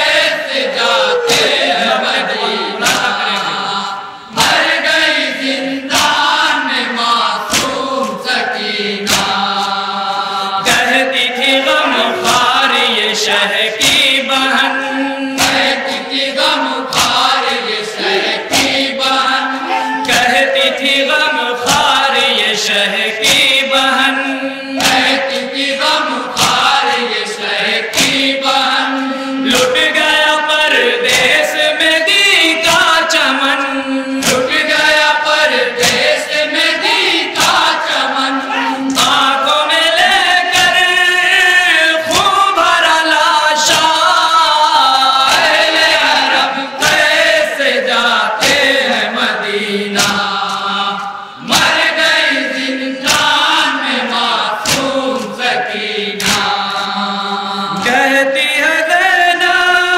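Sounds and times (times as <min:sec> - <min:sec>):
men chanting in chorus: 0:00.0 - 0:59.9
hands slapping chest: 0:02.8 - 0:03.5, 0:05.9 - 0:06.3, 0:07.5 - 0:07.8, 0:09.0 - 0:09.7, 0:15.4 - 0:15.8, 0:16.9 - 0:17.4, 0:18.5 - 0:18.9, 0:21.6 - 0:21.9, 0:24.8 - 0:25.2, 0:26.4 - 0:26.8, 0:27.9 - 0:28.3, 0:35.8 - 0:36.1, 0:37.4 - 0:37.8, 0:50.0 - 0:52.0, 0:53.0 - 0:53.5, 0:54.6 - 0:55.4, 0:56.2 - 0:56.8.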